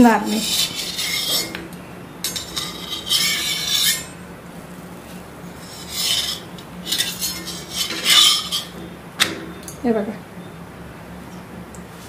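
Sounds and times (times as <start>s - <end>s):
scraping on hot iron griddle: 0.2s - 1.7s, 2.3s - 8.9s.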